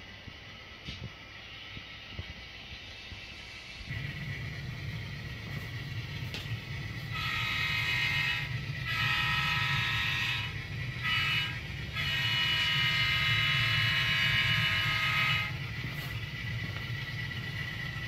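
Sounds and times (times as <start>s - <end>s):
train engine running: 0.0s - 18.0s
locomotive horn blasts: 5.4s - 16.8s.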